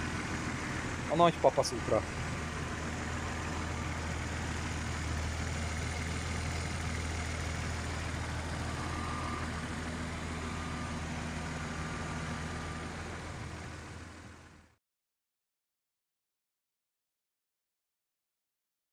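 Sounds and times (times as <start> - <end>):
car engine idling: 0.0 - 14.8.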